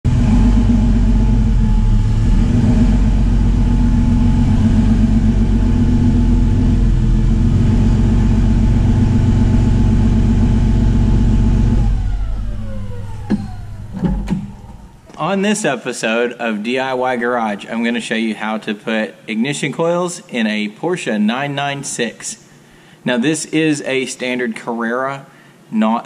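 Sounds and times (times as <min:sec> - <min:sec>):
car engine with loud exhaust: 0:00.0 - 0:15.0.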